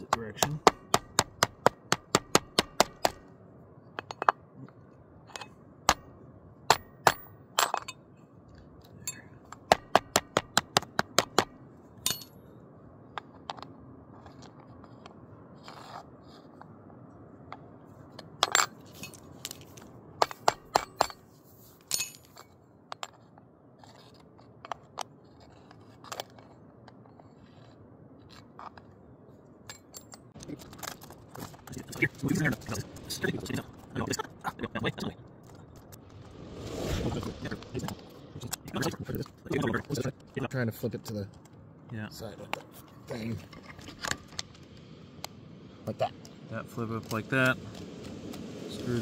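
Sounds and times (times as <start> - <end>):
metal bar clinking on rails: 12.0 - 12.4, 20.2 - 22.5.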